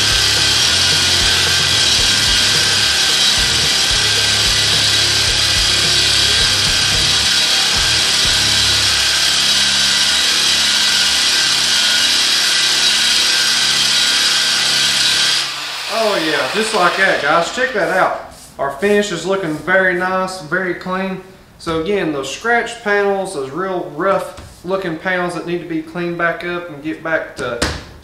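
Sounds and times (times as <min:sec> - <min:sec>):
drum sander on sheet metal: 0:00.0 - 0:18.5.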